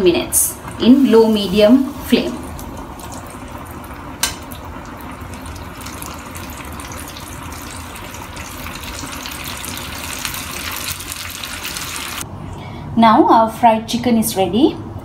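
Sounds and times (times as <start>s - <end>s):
chicken deep-frying in oil: 0.5s - 12.2s.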